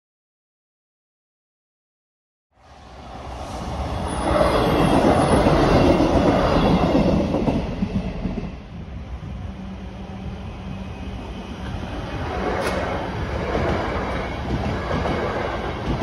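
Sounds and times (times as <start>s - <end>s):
train wheels clattering on track: 11.6s - 16.0s.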